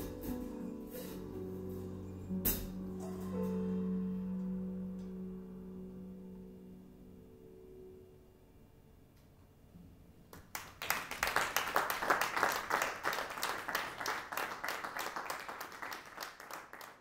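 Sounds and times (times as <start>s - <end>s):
audience applause: 10.4s - 17.0s.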